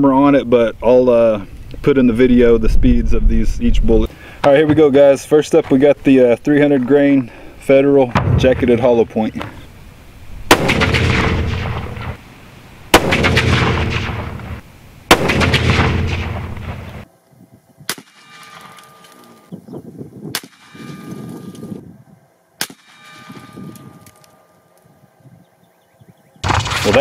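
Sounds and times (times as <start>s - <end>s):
rifle shots echoing: 10.4s - 12.2s, 12.9s - 17.0s, 17.9s - 19.4s, 20.3s - 20.9s, 22.6s - 24.2s.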